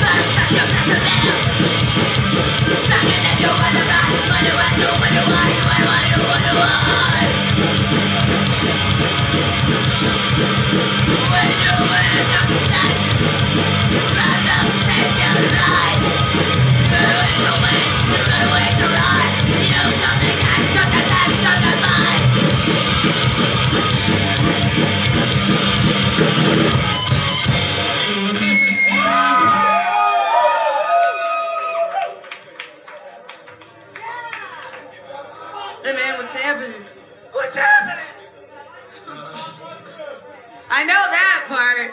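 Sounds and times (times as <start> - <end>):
punk band playing live: 0.0 - 29.8
yelled vocals: 0.0 - 29.8
ringing guitar tones bending: 0.1 - 29.6.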